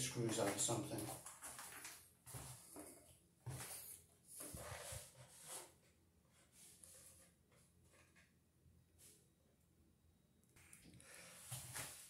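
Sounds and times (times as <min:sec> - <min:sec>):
faint footsteps and shuffling: 0:00.0 - 0:05.8, 0:11.3 - 0:12.0.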